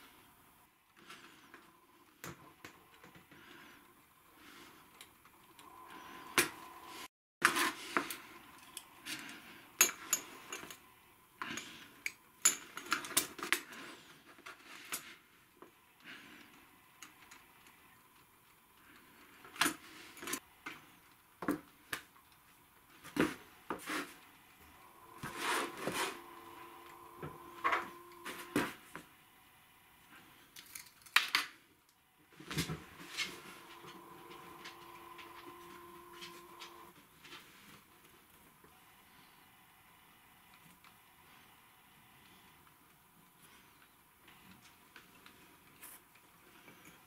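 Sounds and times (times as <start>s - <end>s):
faint steady tone: 24.2s - 30.5s, 32.8s - 37.0s.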